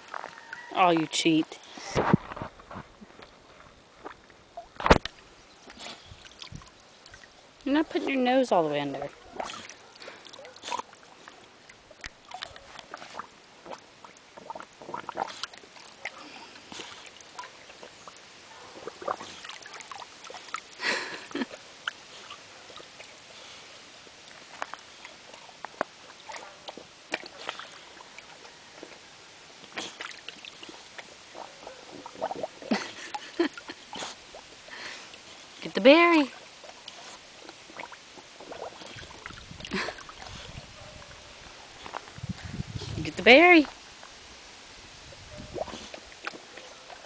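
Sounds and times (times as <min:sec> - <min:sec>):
dog splashing in water: 0:18.6 - 0:23.1, 0:26.0 - 0:28.4, 0:29.7 - 0:34.1.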